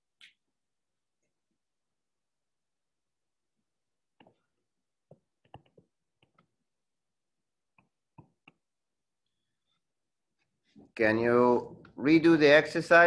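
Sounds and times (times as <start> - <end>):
stylus tapping on touchscreen: 5.1 - 6.5.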